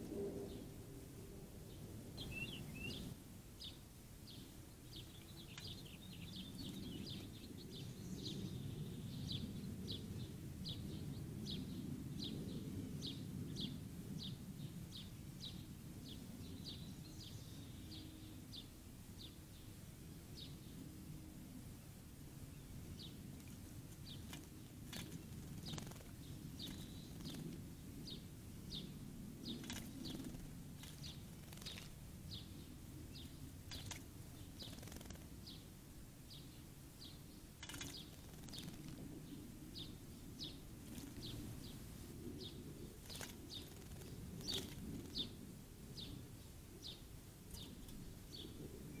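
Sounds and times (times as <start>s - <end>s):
low outdoor rumble: 0.0s - 49.0s
bird splashing in water: 33.7s - 34.1s, 37.6s - 39.0s, 43.0s - 45.2s.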